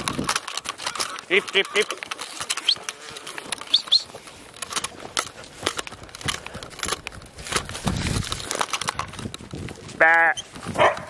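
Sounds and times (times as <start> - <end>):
footsteps through dry straw: 0.0 - 11.0
bird chirps: 2.6 - 2.9, 3.6 - 4.2.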